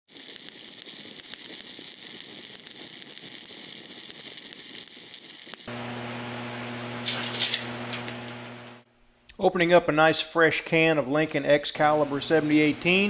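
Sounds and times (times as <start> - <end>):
welding arc crackling and sizzling: 0.0 - 8.9
welder transformer humming: 0.1 - 8.9.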